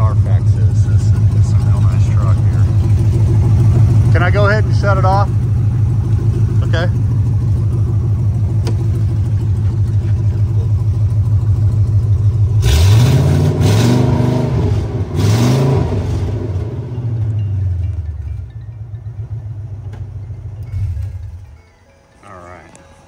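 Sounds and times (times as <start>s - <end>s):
truck engine idling and revving: 0.0s - 23.0s.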